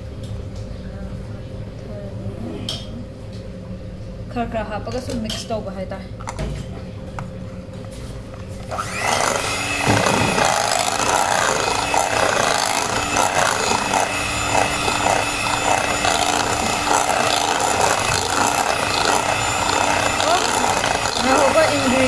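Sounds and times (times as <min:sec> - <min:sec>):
electric hand mixer running: 0:08.6 - 0:22.0
beaters scraping through batter: 0:08.7 - 0:22.0.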